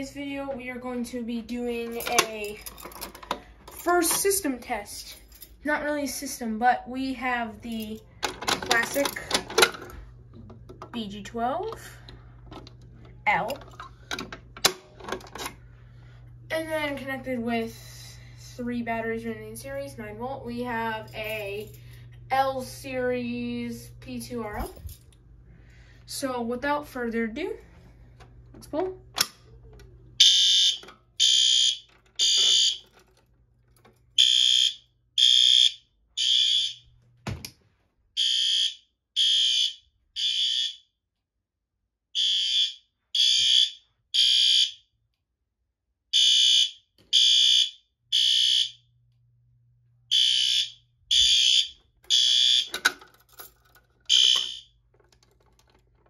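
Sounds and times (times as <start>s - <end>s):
fire alarm horn blasts: 30.2s - 33.0s, 34.2s - 36.9s, 38.2s - 40.9s, 42.2s - 44.9s, 46.1s - 48.9s, 50.1s - 52.8s, 54.1s - 54.8s.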